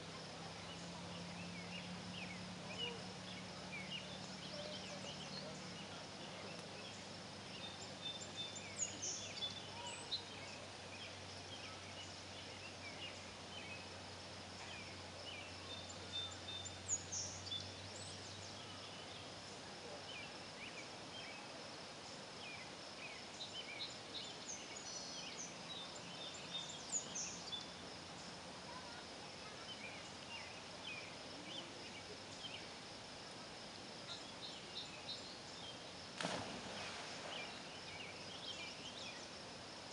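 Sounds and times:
faint low drone: 0.0 - 21.5
birds chirping: 0.0 - 33.1, 34.0 - 39.9.

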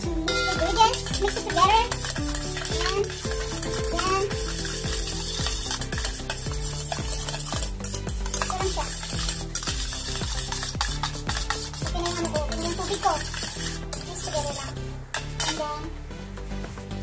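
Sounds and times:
background music with steady beat: 0.0 - 17.0
chopsticks stirring in a steel bowl: 0.2 - 15.7.

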